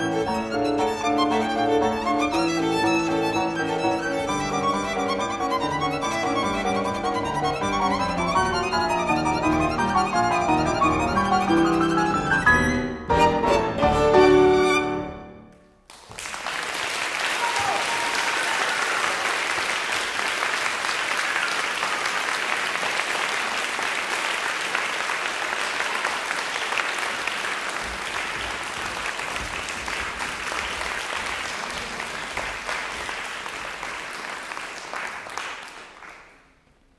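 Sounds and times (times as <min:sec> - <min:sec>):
audience applauding: 0:15.8 - 0:36.7.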